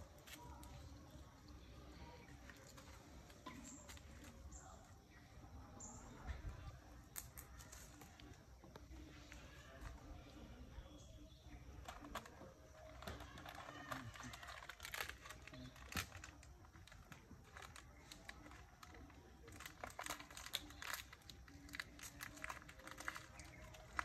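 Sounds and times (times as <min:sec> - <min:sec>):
dry leaves crackling and rustling: 0:00.0 - 0:04.8, 0:11.8 - 0:24.0.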